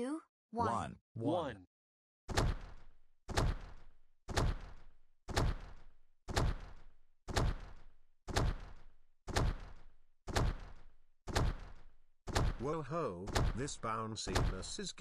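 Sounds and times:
giant footsteps stomping: 2.3s - 12.7s, 13.3s - 13.7s.

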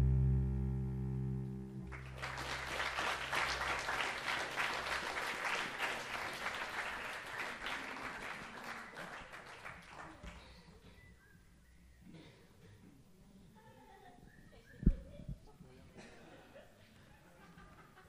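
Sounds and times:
cello low notes: 0.0s - 3.7s
audience applauding: 1.9s - 10.4s.

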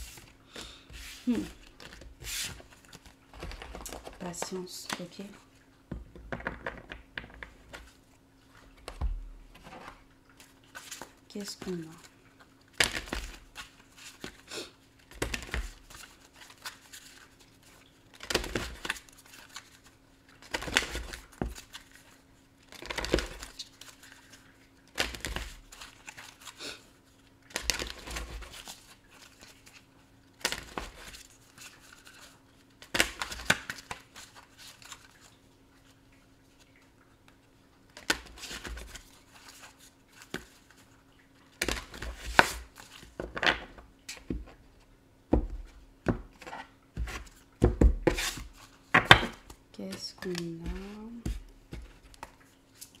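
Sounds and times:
cards being shuffled: 0.0s - 5.2s, 15.0s - 26.6s, 45.5s - 53.0s.

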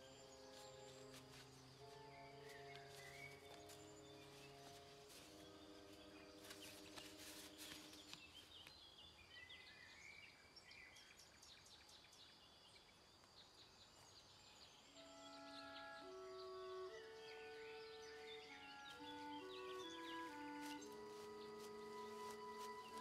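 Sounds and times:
soft held music notes: 0.0s - 9.3s, 14.0s - 23.0s
small birds chirping: 0.0s - 23.0s
paper rustling: 2.4s - 8.7s, 19.0s - 23.0s.

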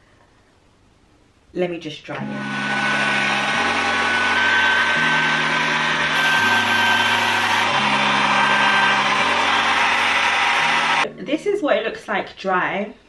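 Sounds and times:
hot air brush fan whining: 2.2s - 11.0s.

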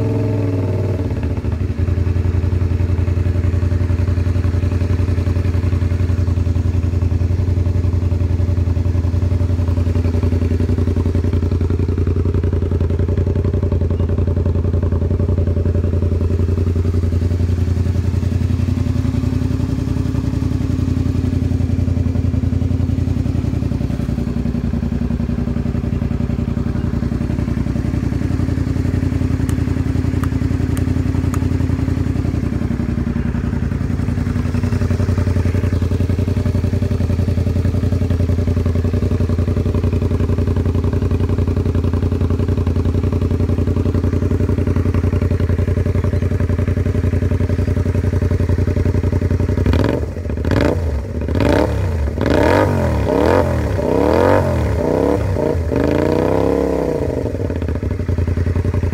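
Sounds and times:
motorcycle engine idling and revving: 0.0s - 58.9s.

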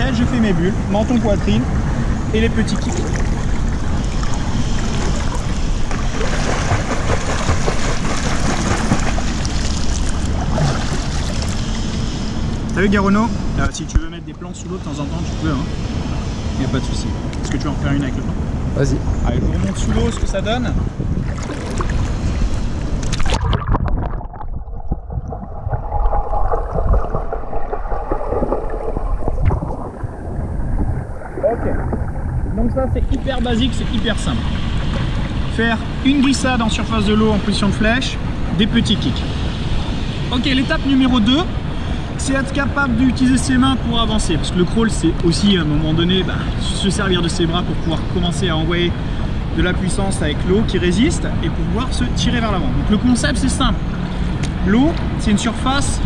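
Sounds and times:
swimmer kicking water splashing: 2.7s - 11.6s, 21.2s - 22.2s, 23.0s - 33.1s
low rumble: 18.3s - 35.5s.

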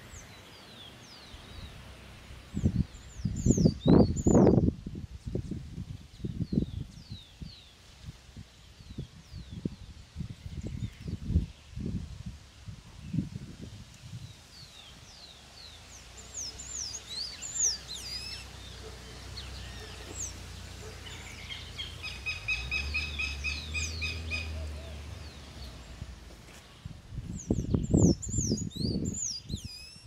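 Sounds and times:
birds chirping: 0.0s - 4.7s, 14.2s - 30.0s.

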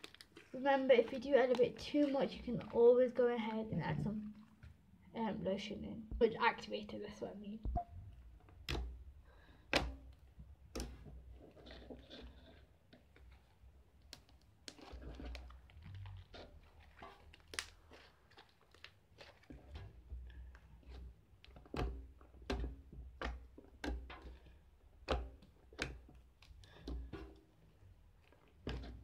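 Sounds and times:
slime squished by hand: 13.2s - 20.0s
small clicks and pops: 14.0s - 19.6s.

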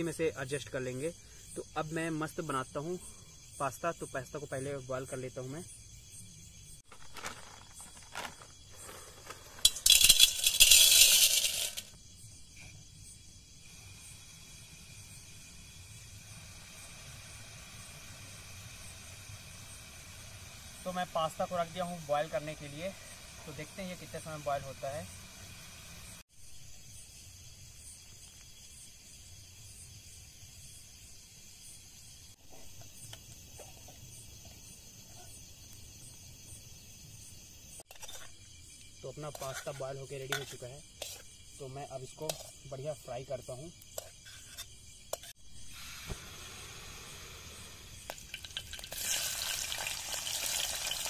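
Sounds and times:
crickets chirping: 0.0s - 51.0s
dry pasta rattling into metal pot: 6.9s - 11.9s, 48.1s - 51.0s
steady high hiss: 7.0s - 33.5s, 34.1s - 51.0s
campfire snapping: 46.0s - 51.0s.

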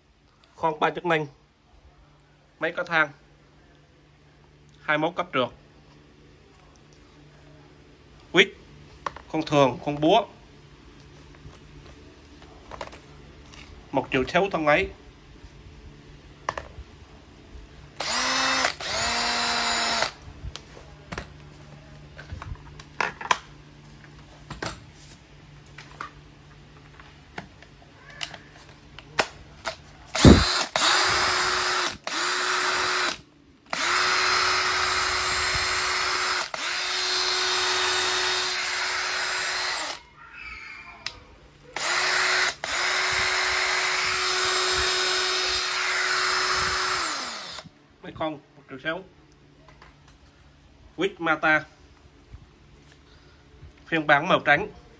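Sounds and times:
cordless drill running: 18.0s - 20.2s, 30.1s - 40.0s, 41.8s - 47.7s.

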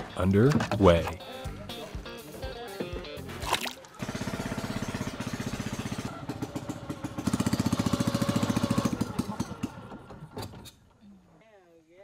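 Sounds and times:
small boat engine puttering: 3.8s - 10.9s.

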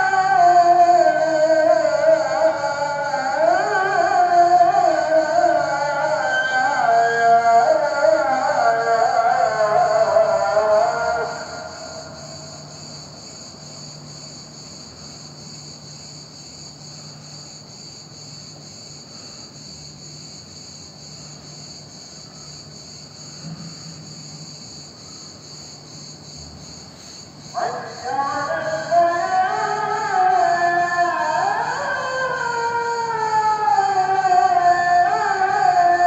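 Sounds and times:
man singing call to prayer: 0.0s - 12.7s, 27.5s - 36.0s
insect chirring: 0.0s - 36.0s.

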